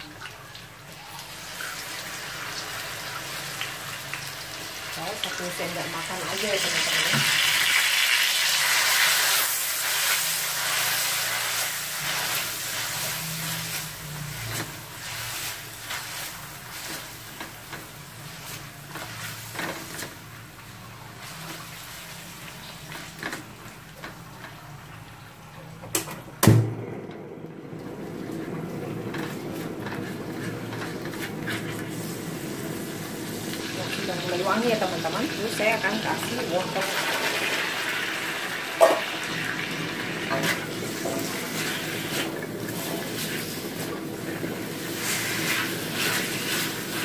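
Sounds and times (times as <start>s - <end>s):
frying in hot oil sizzling: 0.0s - 26.7s, 27.7s - 47.0s
spatula scraping a wok: 8.3s - 20.4s, 29.1s - 32.9s, 40.2s - 47.0s
sharp knock: 26.4s - 26.8s.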